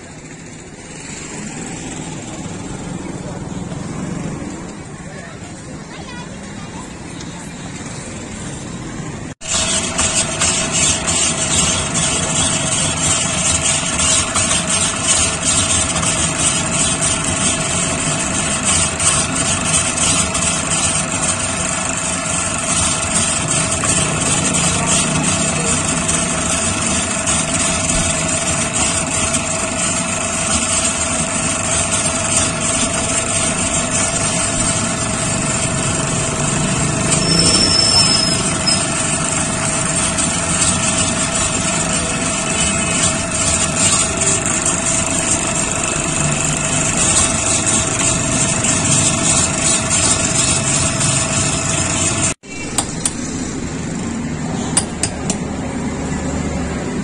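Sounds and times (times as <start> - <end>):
blade grinding ice: 9.4 - 52.4
ice-shaving machine humming: 9.4 - 52.4.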